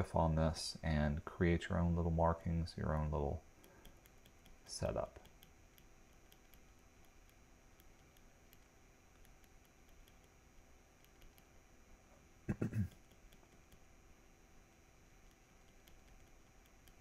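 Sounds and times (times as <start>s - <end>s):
stylus tapping on drawing tablet: 3.6s - 10.4s, 12.9s - 13.9s, 15.2s - 17.0s.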